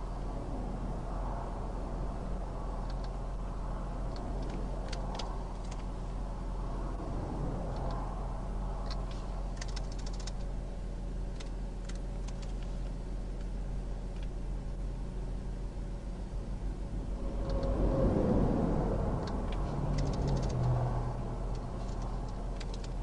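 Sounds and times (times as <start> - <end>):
car engine idling: 0.0 - 23.0
passing highway traffic: 0.0 - 23.0
light clicks: 2.8 - 3.2, 7.7 - 8.0, 8.8 - 10.5, 11.3 - 13.5, 19.2 - 20.8, 21.5 - 23.0.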